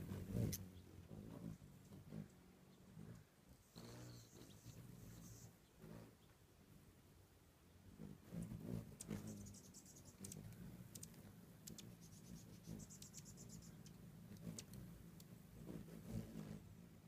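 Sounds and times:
hummingbirds chattering: 0:00.0 - 0:06.9, 0:07.6 - 0:16.8
faint low hum: 0:00.0 - 0:17.0.

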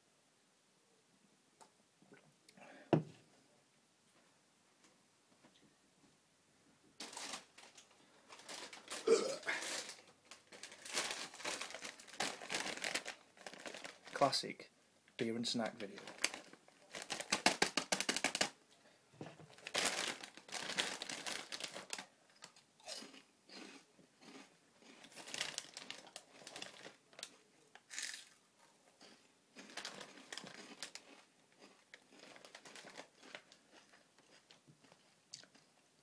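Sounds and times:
plastic crisp packet crinkling: 0:07.0 - 0:14.6, 0:15.4 - 0:18.6, 0:19.5 - 0:28.4, 0:29.0 - 0:35.8.

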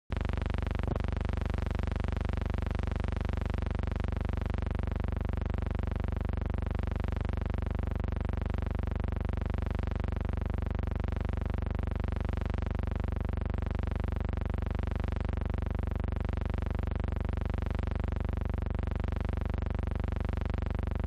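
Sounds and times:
electrical hum: 0:00.1 - 0:03.8.

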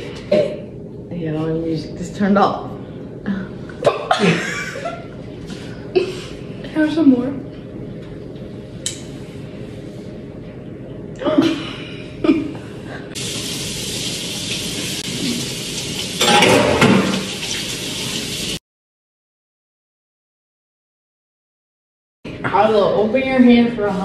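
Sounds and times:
water running from a tap: 0:13.2 - 0:18.6.

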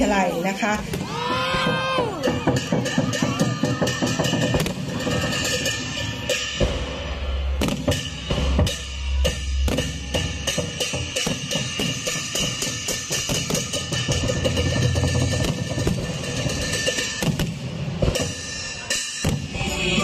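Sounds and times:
music with driving drum beat: 0:00.8 - 0:20.0
heavy bass: 0:04.6 - 0:11.8, 0:19.2 - 0:20.0.

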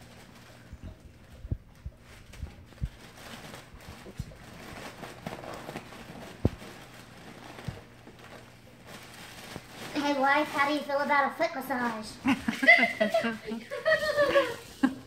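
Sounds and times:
foil balloon crinkling: 0:00.0 - 0:15.0
dull thumps: 0:06.3 - 0:06.8.

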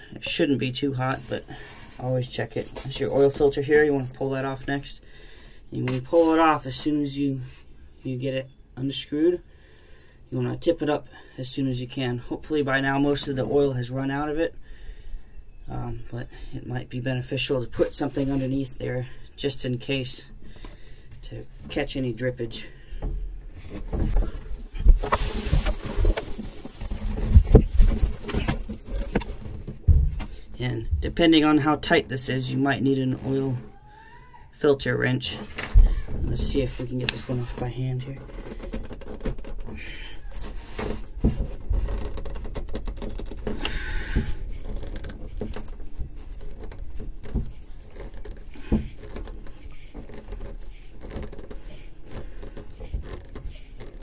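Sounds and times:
cloth rustling and scraping: 0:23.5 - 0:30.5, 0:40.2 - 0:54.0
brief rustle: 0:23.6 - 0:30.5
clicks and knocks on engine: 0:38.3 - 0:40.0.

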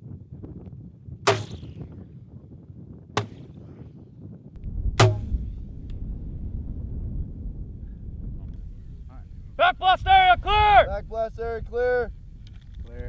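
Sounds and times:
sharp gunshots with ringing tail: 0:01.3 - 0:02.0, 0:05.0 - 0:05.8
low rumble: 0:04.5 - 0:09.6.

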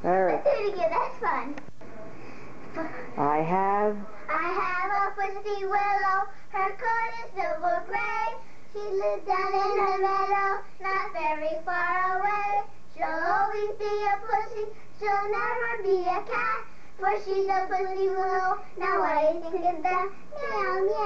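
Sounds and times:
girls singing unaccompanied: 0:04.2 - 0:21.0.

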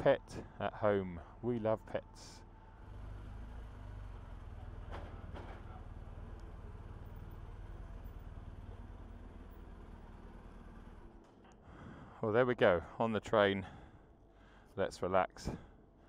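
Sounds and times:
faint clicks: 0:06.3 - 0:06.6.

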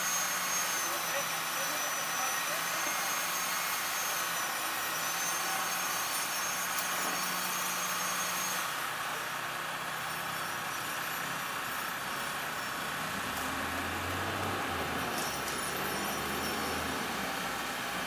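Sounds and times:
high motor whine: 0:00.0 - 0:18.0
diesel engine running: 0:08.8 - 0:18.0.

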